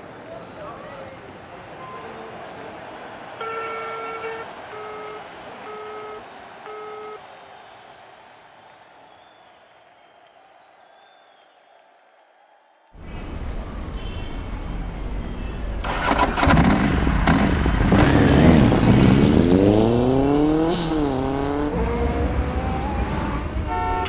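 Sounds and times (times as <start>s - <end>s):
traffic noise: 0.0s - 7.6s, 13.0s - 24.0s
vehicle engine accelerating: 13.0s - 24.0s.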